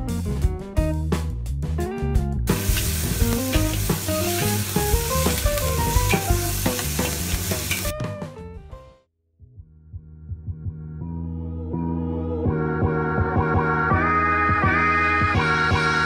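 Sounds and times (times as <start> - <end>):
background music: 0.0 - 16.0
meat sizzling in a wok: 2.5 - 7.9
metal spatula stirring: 2.5 - 7.9.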